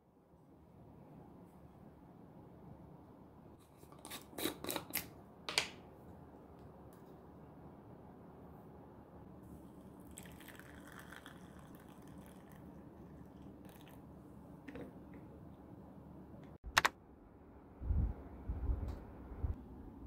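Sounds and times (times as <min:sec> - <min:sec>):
water pouring into cup: 0:09.9 - 0:14.0
sharp click: 0:16.7 - 0:17.0.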